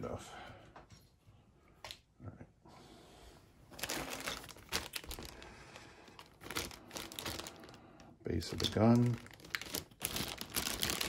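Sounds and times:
plastic bag crinkling: 0:03.7 - 0:11.0.

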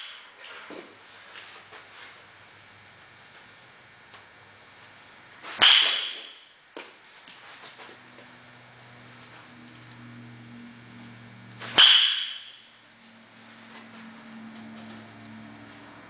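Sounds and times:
metal bat hitting ball: 0:05.5 - 0:06.5, 0:11.6 - 0:12.8
faint low hum: 0:06.1 - 0:11.8.

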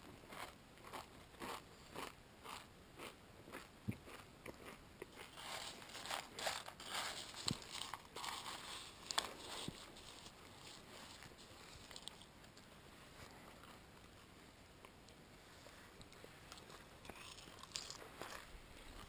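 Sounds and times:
dry cereal crunching: 0:00.3 - 0:12.6, 0:16.5 - 0:19.0.

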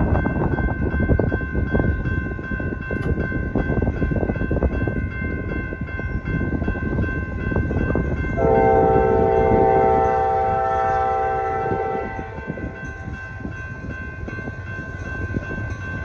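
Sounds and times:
crossing bell ringing: 0:00.0 - 0:16.0
locomotive air horn chord: 0:08.4 - 0:12.8.

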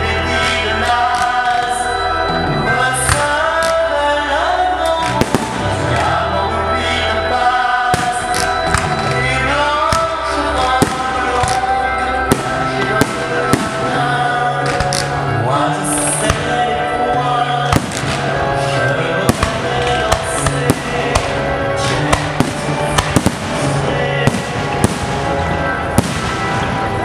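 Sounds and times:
music with singing: 0:00.0 - 0:27.0
fireworks bangs: 0:04.9 - 0:06.2, 0:07.8 - 0:15.3, 0:17.7 - 0:27.0.

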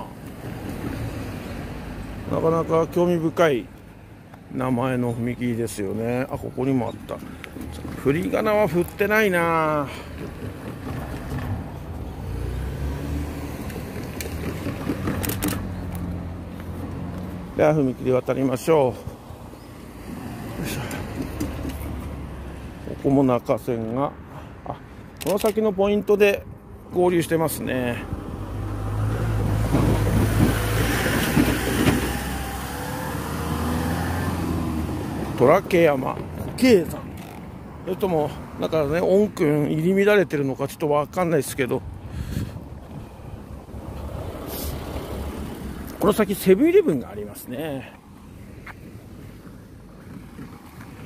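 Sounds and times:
vehicle passing by: 0:07.2 - 0:23.0, 0:27.9 - 0:36.0, 0:42.0 - 0:51.0.

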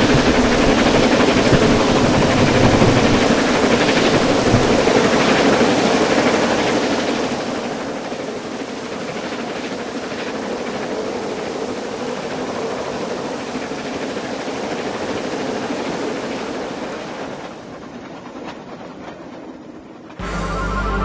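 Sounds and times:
train rumbling on track: 0:00.0 - 0:21.0.

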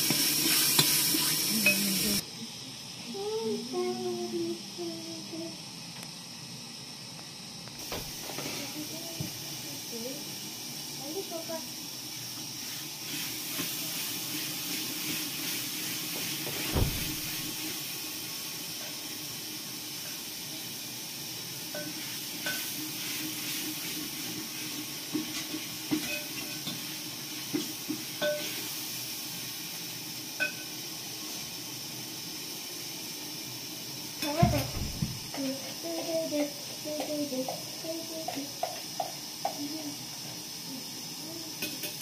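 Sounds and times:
hiss of gas burner cooking: 0:00.0 - 0:42.0
dull knock: 0:34.4 - 0:35.2.

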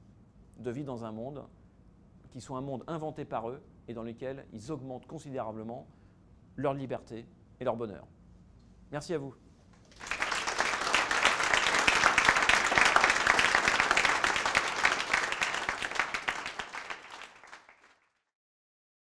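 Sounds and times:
audience applauding: 0:09.9 - 0:18.2.

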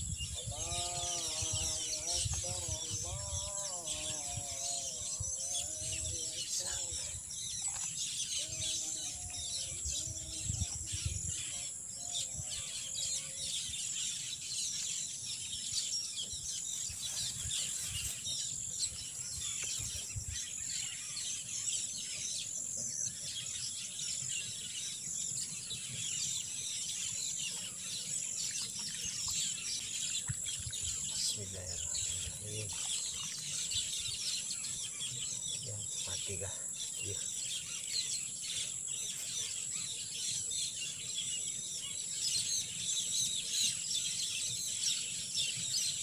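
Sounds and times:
wind rumbling on microphone: 0:00.0 - 0:13.8, 0:16.4 - 0:20.8, 0:30.0 - 0:34.3
birds chirping: 0:00.0 - 0:46.0.

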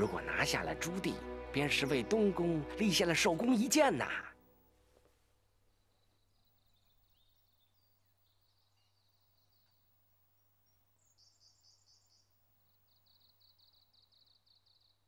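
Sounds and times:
faint birdsong: 0:04.9 - 0:15.0.

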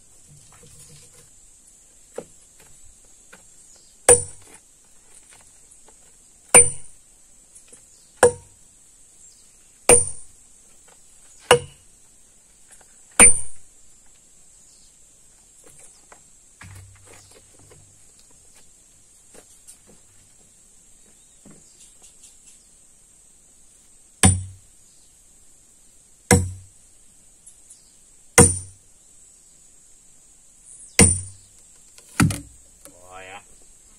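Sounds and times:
sledgehammer striking steel wedges: 0:04.1 - 0:04.4, 0:06.6 - 0:07.0, 0:08.2 - 0:08.5, 0:09.9 - 0:10.3, 0:11.5 - 0:11.8, 0:13.2 - 0:13.6, 0:24.2 - 0:24.6, 0:26.3 - 0:26.7, 0:28.4 - 0:28.8, 0:31.0 - 0:31.4.

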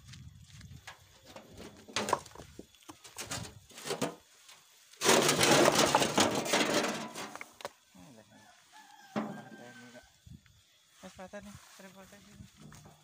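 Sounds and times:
stones clattering onto rock pile: 0:01.2 - 0:04.2, 0:05.0 - 0:07.7
wheelbarrow knocking: 0:01.2 - 0:04.2, 0:05.0 - 0:07.6, 0:09.2 - 0:09.6.

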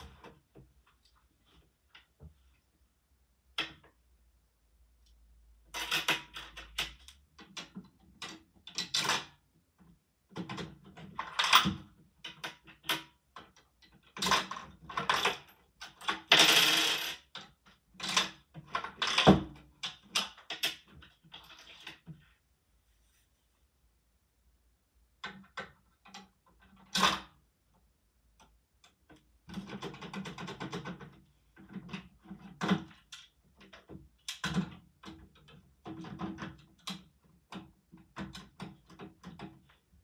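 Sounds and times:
coin clinking on plastic bricks: 0:14.3 - 0:17.4.

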